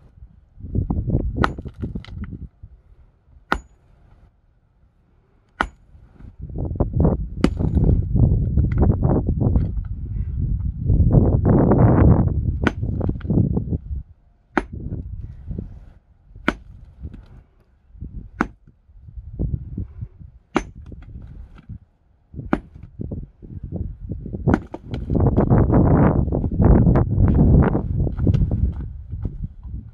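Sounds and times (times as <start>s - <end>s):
sledgehammer striking rock: 1.3s - 2.4s, 3.5s - 3.8s, 5.5s - 6.3s, 7.4s - 8.0s, 12.6s - 13.4s, 14.5s - 15.0s, 16.4s - 17.3s, 18.3s - 18.7s, 20.5s - 21.7s, 22.4s - 23.0s, 24.4s - 25.6s, 27.2s - 28.8s
loud low rumbling: 6.3s - 17.3s, 22.3s - 29.9s.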